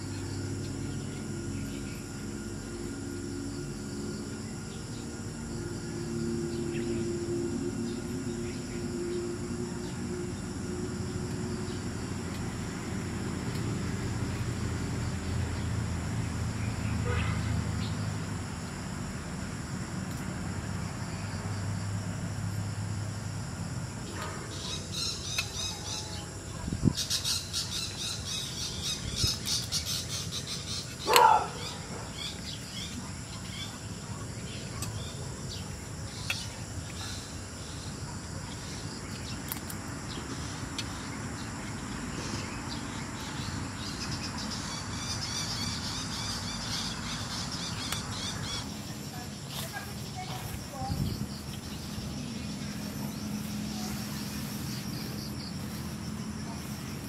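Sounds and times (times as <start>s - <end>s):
insects droning: 0.0s - 57.0s
birds chirping: 23.5s - 57.0s
loud short bird call: 31.0s - 31.8s.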